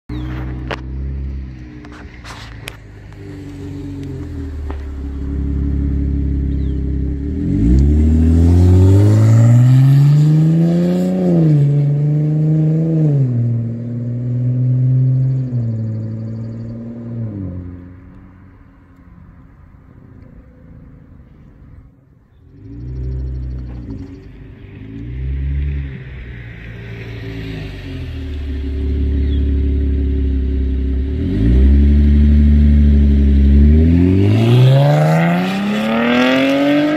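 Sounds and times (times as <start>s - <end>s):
car engine accelerating: 0.1s - 36.9s
engine throttle blips: 22.5s - 36.2s.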